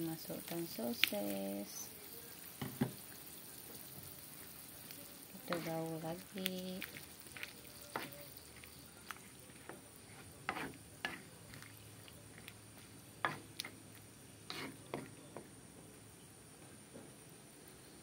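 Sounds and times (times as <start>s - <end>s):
simmering pot hiss: 0.0s - 18.0s
ladle knocking and scraping wok: 7.4s - 11.7s, 13.2s - 13.8s, 14.5s - 15.5s.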